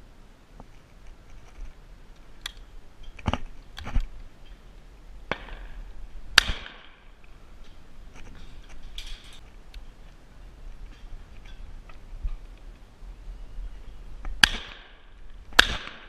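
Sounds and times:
shotgun shot: 0:06.4 - 0:07.0, 0:14.4 - 0:15.0, 0:15.6 - 0:16.0.

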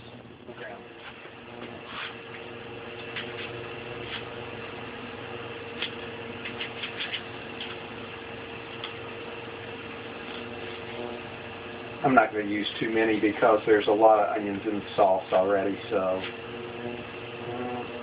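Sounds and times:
electrical hum with faint whine: 0:00.0 - 0:18.0.

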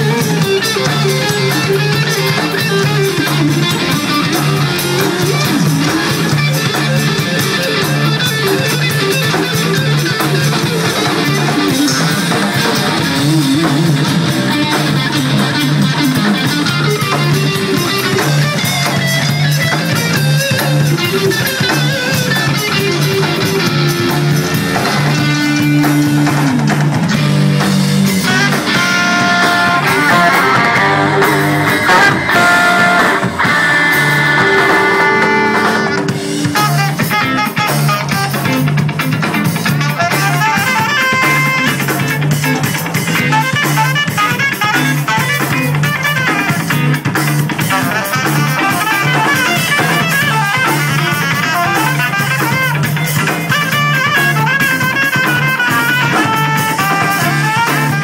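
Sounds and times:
electric guitar: 0:00.0 - 0:58.0
jazz-funk band playing: 0:00.0 - 0:58.0
alto saxophone held notes: 0:15.8 - 0:38.8, 0:39.7 - 0:42.6, 0:43.2 - 0:58.0.

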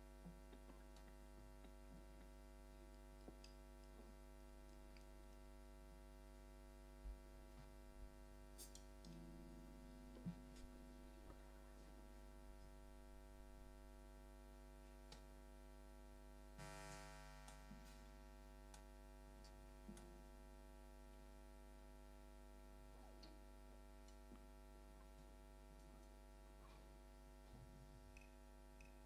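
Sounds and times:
electrical hum: 0:00.0 - 0:29.0.

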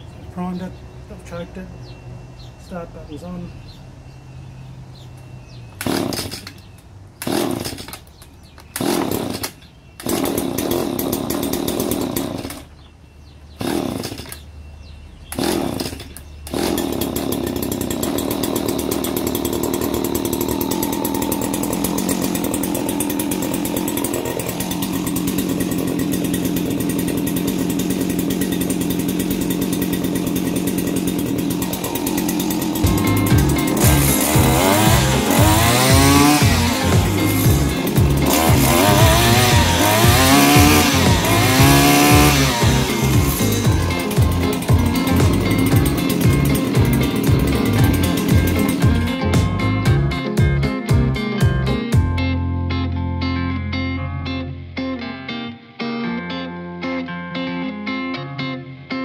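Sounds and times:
trimmer engine starting and running: 0:05.8 - 0:52.2.

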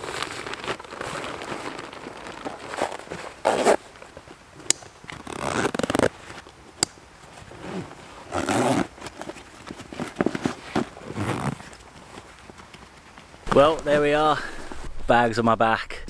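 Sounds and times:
zip pulled rasping: 0:00.1 - 0:03.8, 0:04.7 - 0:06.1, 0:07.5 - 0:09.2, 0:10.0 - 0:11.7.

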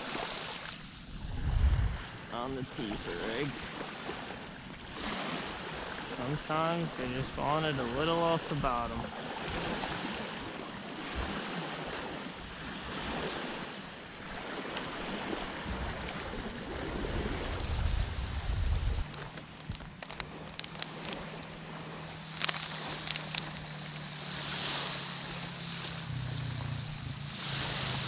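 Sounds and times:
small waves lapping on shore: 0:00.0 - 0:28.0
wind on microphone: 0:01.0 - 0:03.6, 0:08.5 - 0:21.9
crunching clicks: 0:19.0 - 0:21.6, 0:22.3 - 0:24.0.

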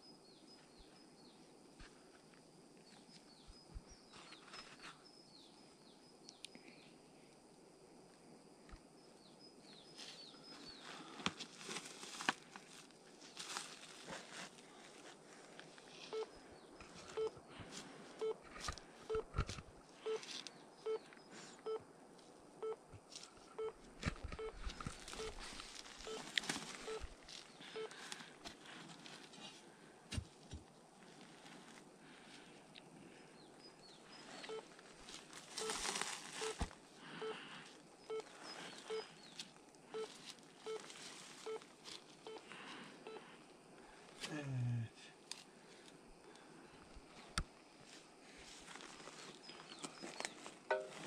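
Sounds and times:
metal detector beeps: 0:17.1 - 0:17.4, 0:19.1 - 0:19.4, 0:20.0 - 0:20.2, 0:20.8 - 0:21.8, 0:23.5 - 0:28.0, 0:34.4 - 0:34.7, 0:35.6 - 0:35.8, 0:36.4 - 0:36.6, 0:38.1 - 0:39.2, 0:39.9 - 0:40.8, 0:41.4 - 0:41.6, 0:42.2 - 0:42.4, 0:50.7 - 0:51.0
scanner beeping: 0:23.5 - 0:25.4, 0:26.0 - 0:28.0, 0:38.9 - 0:39.2, 0:50.7 - 0:51.0.

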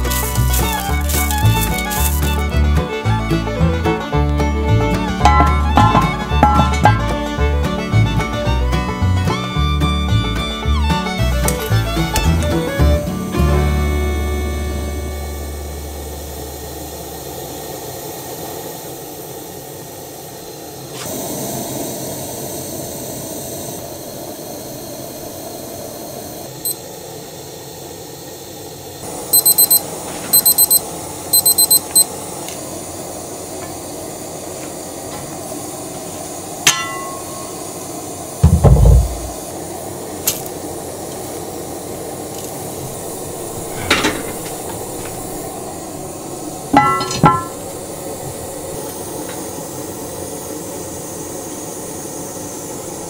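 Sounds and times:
gas burner hissing: 0:00.0 - 0:53.0
kitchen timer beeping: 0:29.3 - 0:30.8, 0:31.4 - 0:32.1
sharp clicks: 0:29.4 - 0:29.8
heavy thump: 0:38.4 - 0:39.4.

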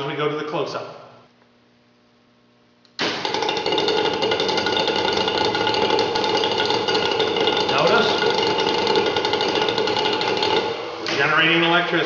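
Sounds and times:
faint hum: 0:00.0 - 0:12.0
engine buzzing with fast rattle: 0:03.0 - 0:11.1.

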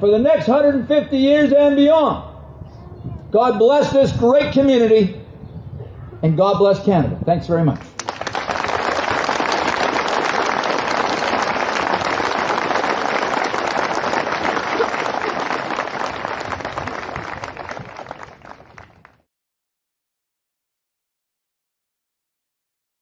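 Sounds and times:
crowd applauding: 0:07.9 - 0:19.2.

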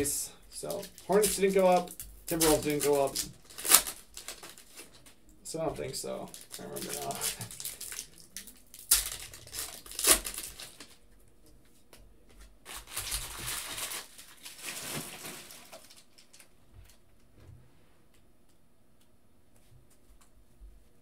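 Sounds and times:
foil wrapper crinkling and tearing: 0:00.6 - 0:05.2, 0:06.2 - 0:11.0, 0:12.6 - 0:16.5.

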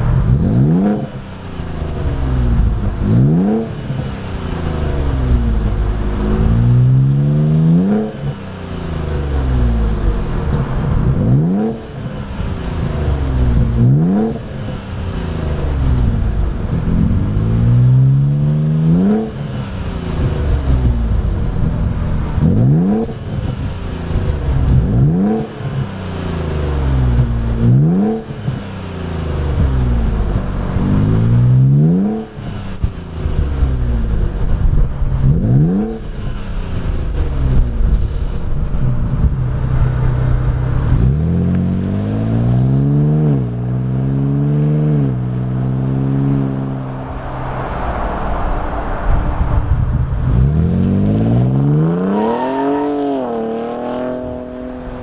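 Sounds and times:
engine revving: 0:00.0 - 0:55.0.

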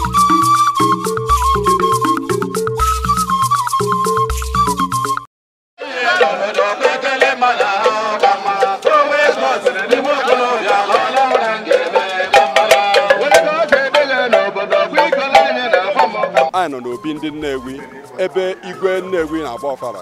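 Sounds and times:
men singing together: 0:05.8 - 0:16.6
hand percussion strikes: 0:06.1 - 0:18.2.

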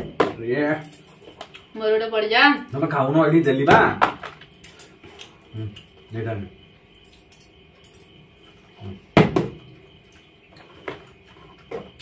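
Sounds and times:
plastic bottle knocking on tiled floor: 0:00.0 - 0:00.4, 0:09.2 - 0:09.6.

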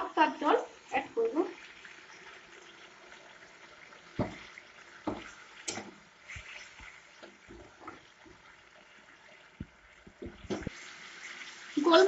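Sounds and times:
liquid simmering: 0:00.0 - 0:12.0
spatula knocking and scraping pan: 0:04.2 - 0:06.4.

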